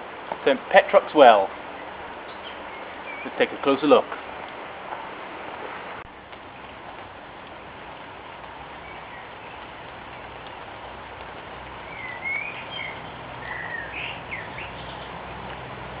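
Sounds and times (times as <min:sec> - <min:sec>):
steady background hiss: 0:00.0 - 0:16.0
small bird chirping: 0:01.8 - 0:03.4, 0:08.3 - 0:10.7, 0:11.8 - 0:15.2.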